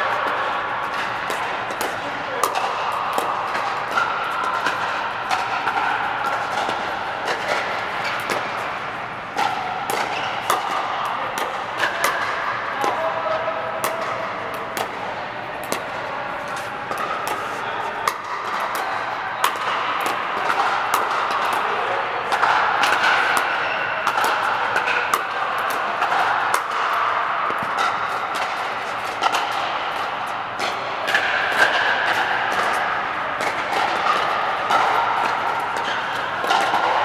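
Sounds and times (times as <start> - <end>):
paddles hitting plastic ball: 0.2 - 13.0, 13.7 - 37.0.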